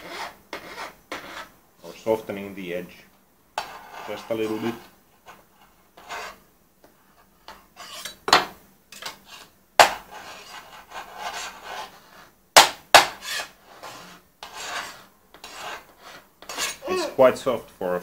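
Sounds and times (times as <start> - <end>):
file rasping on aluminium: 0.0 - 1.5, 3.6 - 6.4, 7.5 - 8.2, 9.0 - 12.3, 13.0 - 17.0.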